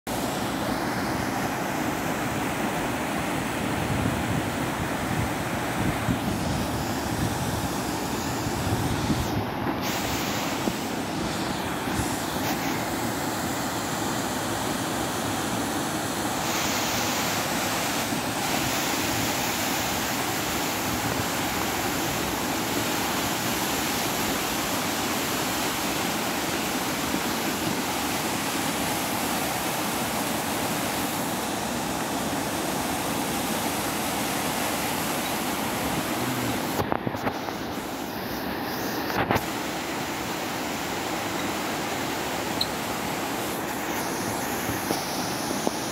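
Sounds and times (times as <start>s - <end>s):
stream rushing over rocks: 0.1s - 45.9s.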